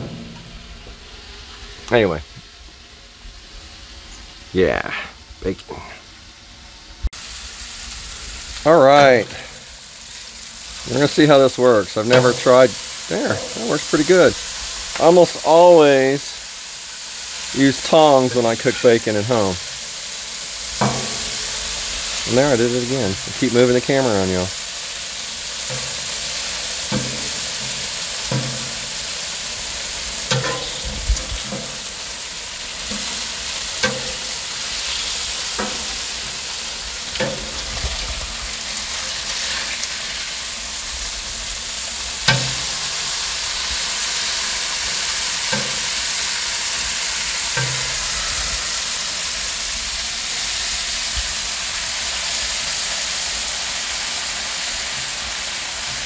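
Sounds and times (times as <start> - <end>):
bacon sizzling on a griddle: 0.0 - 56.0
metal spatula scraping griddle: 18.0 - 19.5, 25.5 - 29.1, 29.8 - 31.9, 32.8 - 38.2, 38.9 - 40.3.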